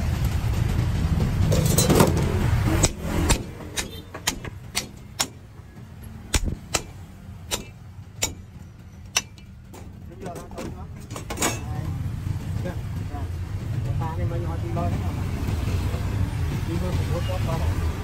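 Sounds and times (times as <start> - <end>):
hammer striking cleaver: 1.6 - 10.0.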